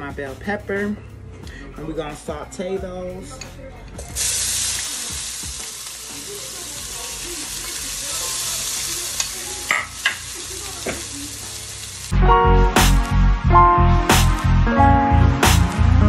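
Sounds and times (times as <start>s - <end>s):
onions and peppers sizzling: 4.0s - 12.2s
music with heavy beat: 12.1s - 16.0s.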